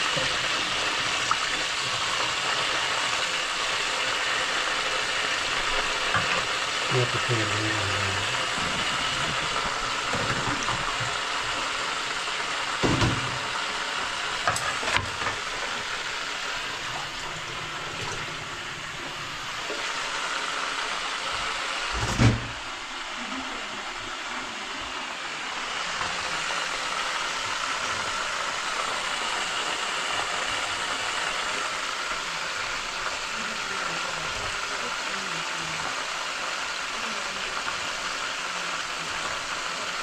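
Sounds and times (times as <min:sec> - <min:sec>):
fish sizzling in oil: 0:00.0 - 0:40.0
loud thump: 0:22.0 - 0:22.6.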